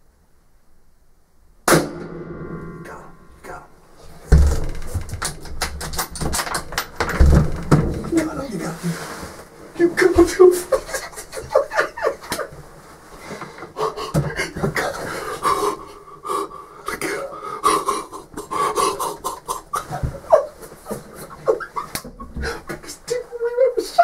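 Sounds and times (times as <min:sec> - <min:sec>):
person panting: 0:13.2 - 0:19.8, 0:22.4 - 0:22.8.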